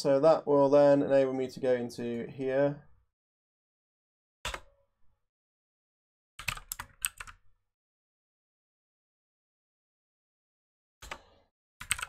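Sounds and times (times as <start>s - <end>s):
computer keyboard typing: 6.4s - 7.4s.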